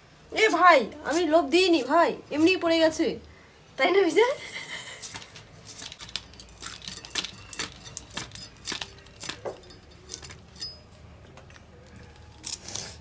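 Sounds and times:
pieces dropping into steel bowl: 5.1 - 10.8.

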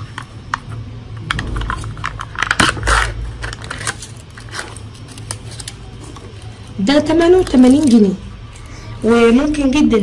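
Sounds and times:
foil seal clicks and crinkles: 2.0 - 6.2
foil tearing rustle: 2.5 - 8.2.

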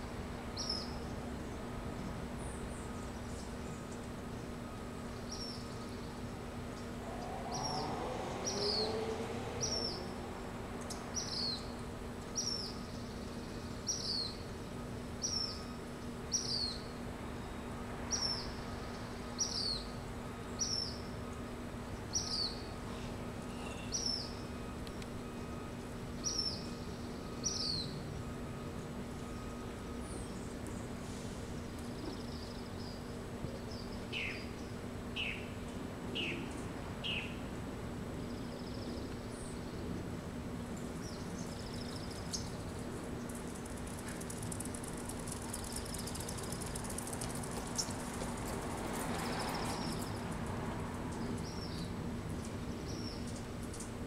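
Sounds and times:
steady low hum: 0.0 - 49.0
bird chirping: 5.0 - 10.2, 10.8 - 21.1, 25.3 - 28.1, 31.7 - 35.5, 40.9 - 43.8.

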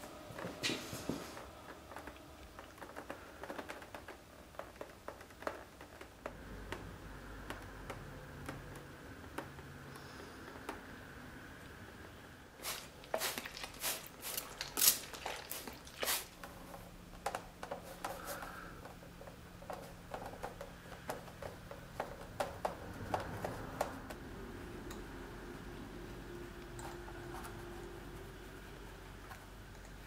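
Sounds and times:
spray bottle hissing: 12.6 - 16.3.

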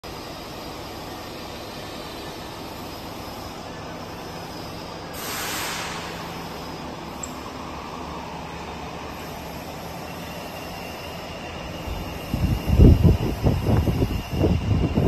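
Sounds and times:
workshop machinery humming: 0.0 - 15.0
loud hiss: 5.1 - 6.8.

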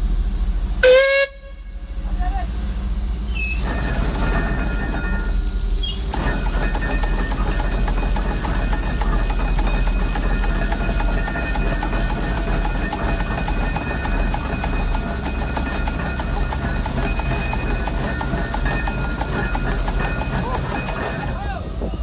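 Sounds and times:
steam whistle blast: 0.8 - 1.9
crane machinery noise: 2.0 - 22.0
steam hissing: 2.5 - 22.0.

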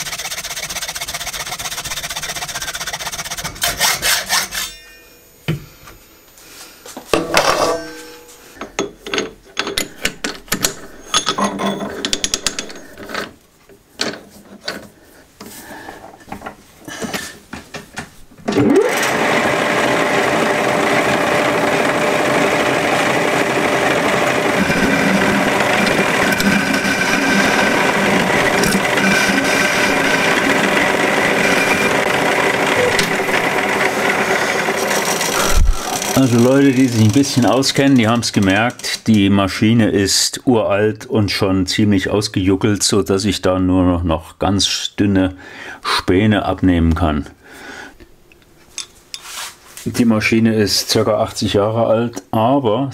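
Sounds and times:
metal parts clicking and knocking: 8.6 - 13.4, 24.6 - 30.7, 34.9 - 39.2
metal lathe running: 18.6 - 39.0.

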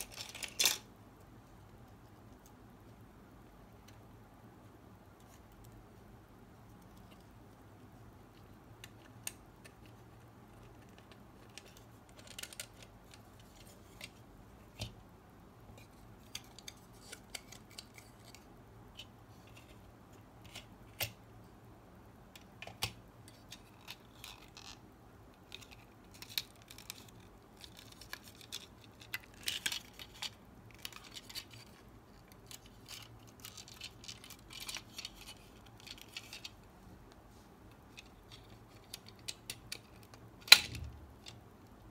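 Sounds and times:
plastic parts clicking and tapping: 8.4 - 15.0, 22.3 - 24.8, 25.4 - 36.6, 37.7 - 41.7.

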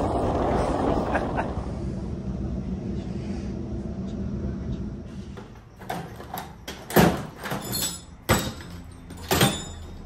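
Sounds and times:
mechanical hum: 0.0 - 10.0
sharp knocks and clatters: 5.4 - 10.0.

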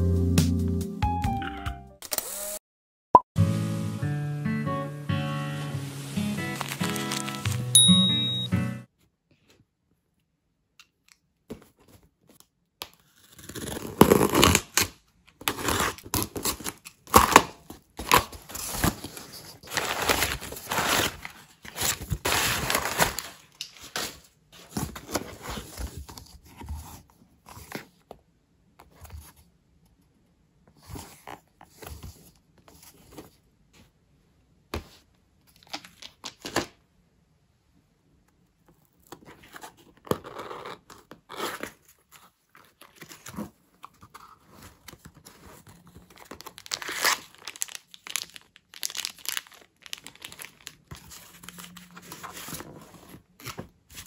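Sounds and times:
tearing and crinkling packaging: 5.8 - 7.8, 13.0 - 25.8, 38.8 - 54.0.

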